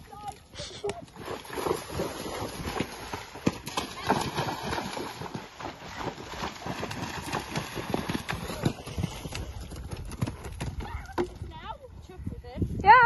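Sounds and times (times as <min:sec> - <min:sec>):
horse hooves splashing through water: 0:00.0 - 0:12.2
horse hooves on firm ground: 0:00.9 - 0:13.0.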